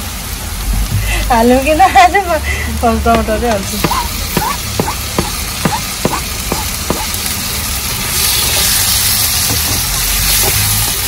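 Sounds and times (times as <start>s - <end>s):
tomatoes sizzling in a wok: 0.0s - 11.0s
spatula tapping and scraping: 3.1s - 7.2s.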